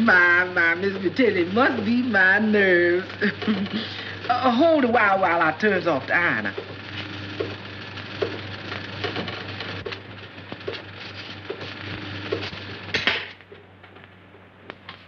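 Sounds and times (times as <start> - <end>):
rotary ironer mechanical clatter: 6.5 - 13.3.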